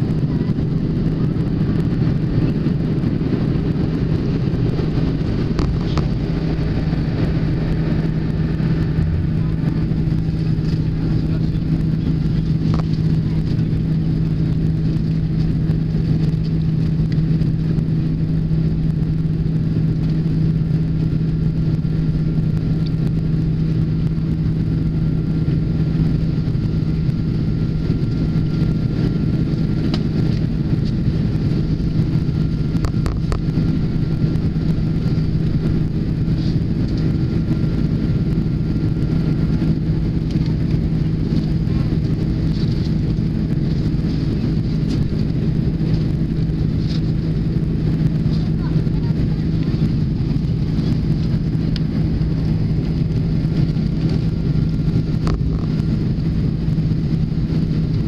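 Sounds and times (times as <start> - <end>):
jet engines droning in cabin: 0.0 - 58.0
rush of air: 5.2 - 11.8.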